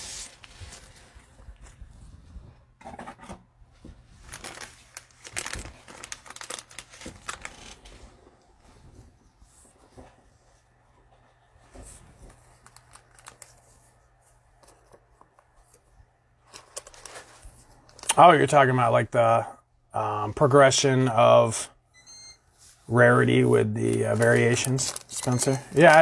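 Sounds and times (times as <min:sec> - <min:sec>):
cards and wrapper rustling: 0:04.2 - 0:07.9, 0:12.2 - 0:14.0, 0:16.4 - 0:18.2, 0:23.2 - 0:26.0.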